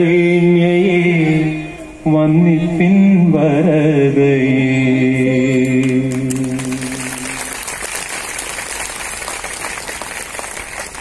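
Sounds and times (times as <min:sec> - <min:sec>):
applause: 0:05.8 - 0:11.0.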